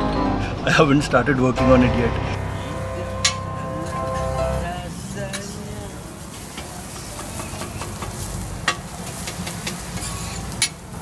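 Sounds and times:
patties sizzling on a griddle: 4.6 - 11.0.

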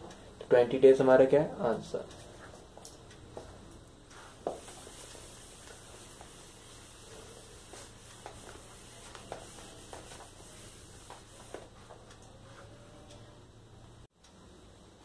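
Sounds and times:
duster rubbing whiteboard: 4.1 - 12.7.

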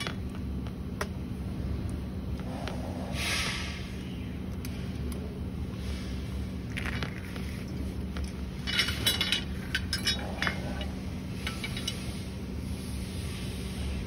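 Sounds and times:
metal tubes clinking together: 8.1 - 12.2.

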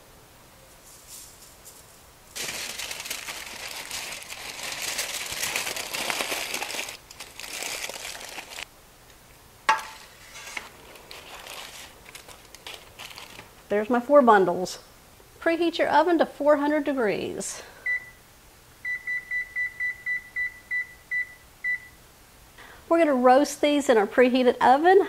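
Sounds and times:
soft rustling: 0.6 - 8.7, 9.9 - 13.6
aluminium foil crinkling: 0.8 - 8.7, 9.9 - 13.6.

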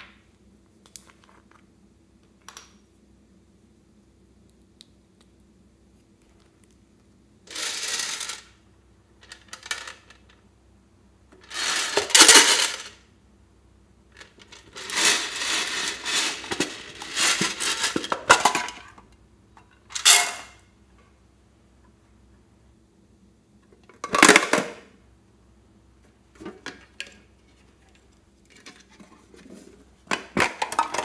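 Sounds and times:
plastic containers rattling and scraping: 11.4 - 13.0, 14.2 - 19.0, 26.3 - 31.0.

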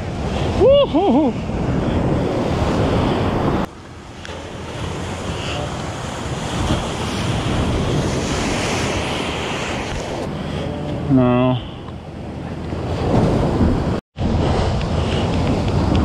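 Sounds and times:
wind buffeting microphone: 0.0 - 11.1, 11.9 - 16.0
waves breaking over rocks: 1.7 - 10.2.

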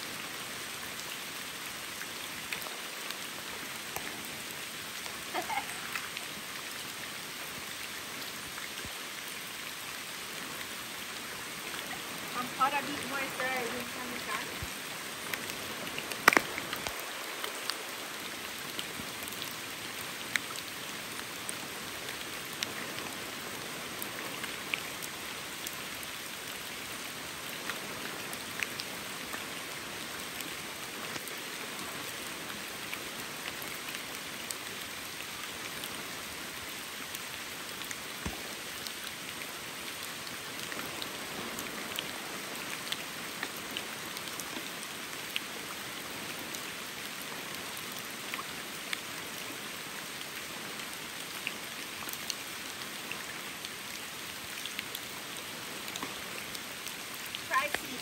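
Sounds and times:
water drips: 11.5 - 17.8
water pattering: 12.3 - 14.6.

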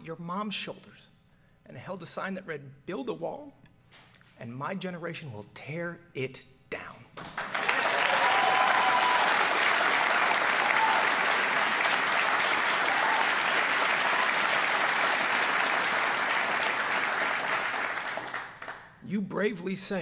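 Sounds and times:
audience applauding: 7.2 - 18.9
people cheering: 7.5 - 18.8.

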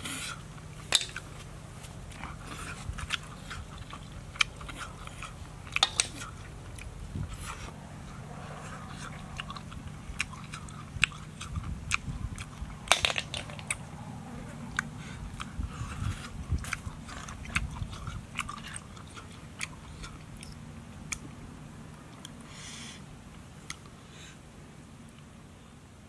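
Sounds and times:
man chewing: 0.0 - 12.9, 13.5 - 24.4
sharp clicks of shells: 12.9 - 13.8.

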